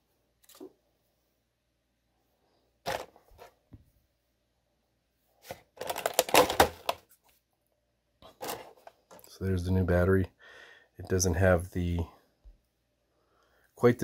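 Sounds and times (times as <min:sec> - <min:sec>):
plastic tray crackling: 0:05.4 - 0:07.1.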